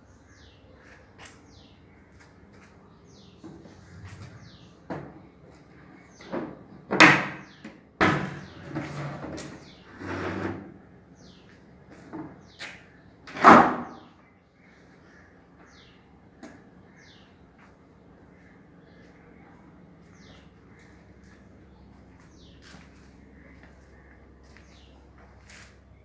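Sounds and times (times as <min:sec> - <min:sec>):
wooden table sliding: 0:08.6 - 0:10.7.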